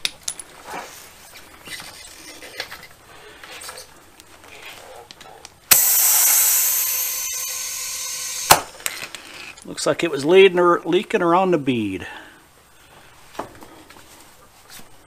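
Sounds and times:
compressed air hissing: 5.7 - 8.7
valve tool clicks and scrapes: 5.7 - 8.7.

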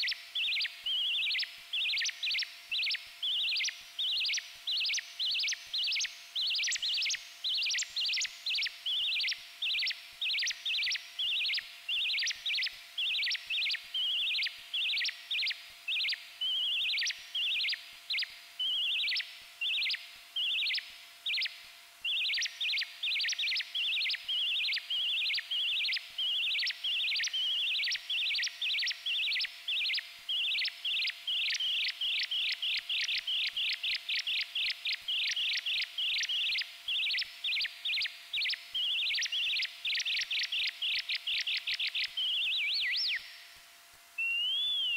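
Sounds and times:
faint steady hum: 0.0 - 44.9
synthesized bird-like chirps: 44.2 - 44.9.

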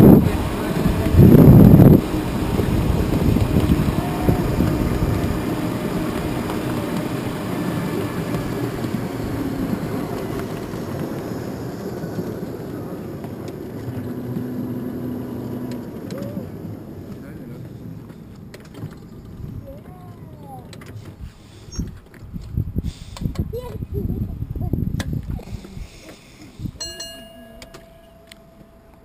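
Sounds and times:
miniature tram wheels on rails: 0.0 - 23.8, 24.8 - 29.0
faint steady tones: 26.8 - 29.0.

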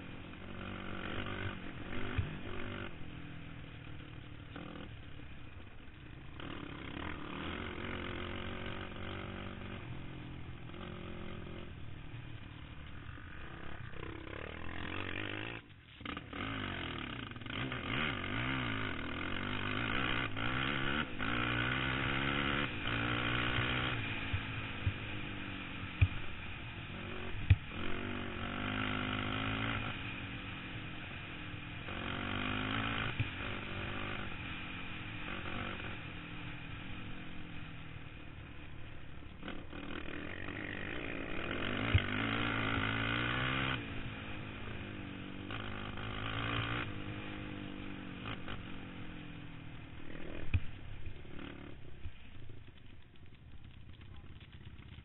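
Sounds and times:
quad engine revving: 0.0 - 3.0, 6.3 - 11.8, 12.9 - 26.2, 26.9 - 30.1, 31.8 - 34.4, 35.2 - 36.0, 39.4 - 48.9, 50.0 - 52.6.

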